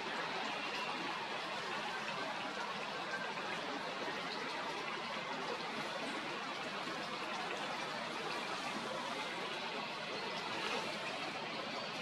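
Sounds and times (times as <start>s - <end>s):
water trickling into pond: 0.0s - 12.0s.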